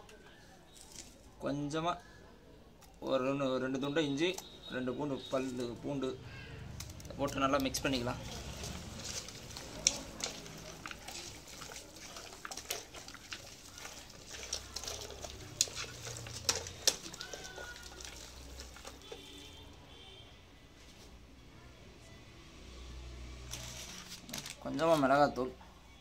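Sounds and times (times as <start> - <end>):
wet squelching of kneaded meat: 4.4 - 19.7.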